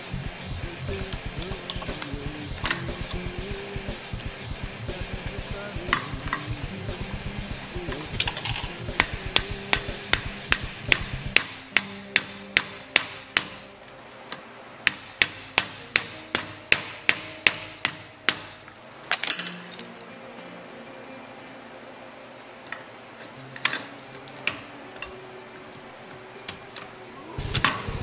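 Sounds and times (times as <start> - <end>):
sharp evenly spaced knocks: 0.0 - 13.6, 14.9 - 18.6
music: 0.0 - 28.0.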